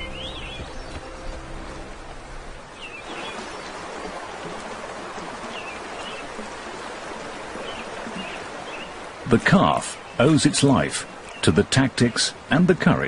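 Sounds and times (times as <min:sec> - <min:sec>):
bird chirps: 0:00.0 - 0:01.4
low sustained music tones: 0:00.0 - 0:08.6
river water rushing: 0:00.0 - 0:13.0.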